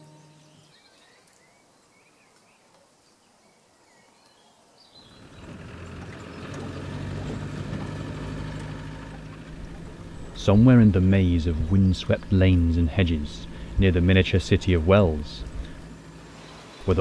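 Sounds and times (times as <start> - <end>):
faint birdsong chirping: 0.0 - 17.0
vehicle engine droning: 5.0 - 17.0.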